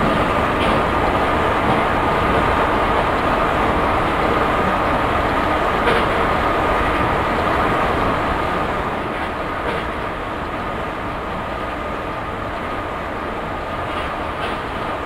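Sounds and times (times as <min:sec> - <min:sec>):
wheels clicking on rails: 0:00.0 - 0:03.2, 0:05.8 - 0:07.1, 0:13.8 - 0:14.9
train rolling rumble: 0:00.0 - 0:15.0.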